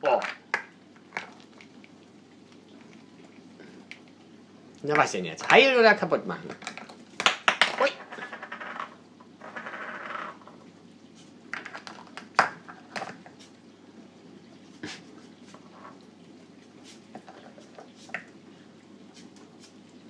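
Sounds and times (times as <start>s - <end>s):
plastic cups clicking and knocking: 0.0s - 1.9s, 6.4s - 10.6s, 11.5s - 13.4s, 17.1s - 18.3s.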